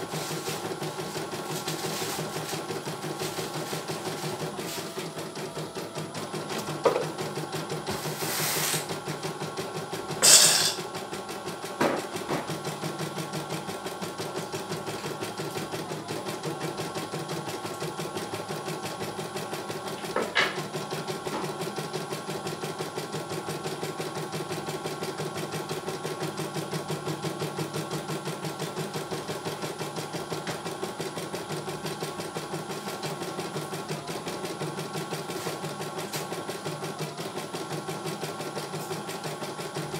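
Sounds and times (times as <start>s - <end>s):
embroidery machine stitching: 0.0s - 39.9s.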